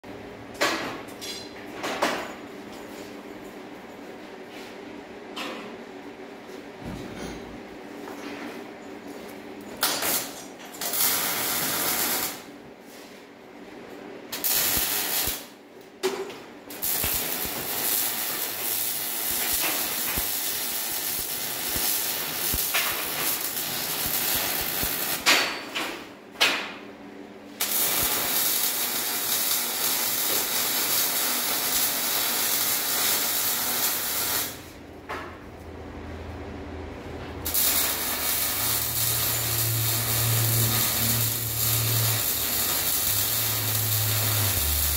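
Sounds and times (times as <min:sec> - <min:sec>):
welding arc crackling: 0:10.8 - 0:12.5, 0:14.3 - 0:15.5, 0:16.7 - 0:25.3, 0:27.6 - 0:34.8, 0:37.4 - 0:44.9.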